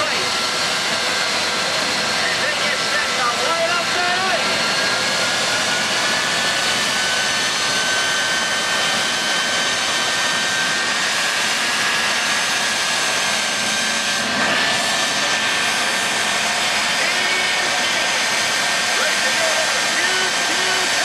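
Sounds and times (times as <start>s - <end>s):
turbine engines idling whine: 0.0s - 21.0s.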